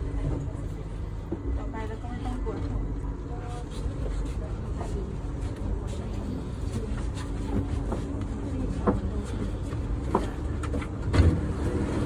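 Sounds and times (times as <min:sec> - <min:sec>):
faint hum: 0:00.0 - 0:12.0
train interior rumble: 0:00.0 - 0:12.0
thump of train doors opening: 0:10.7 - 0:11.6.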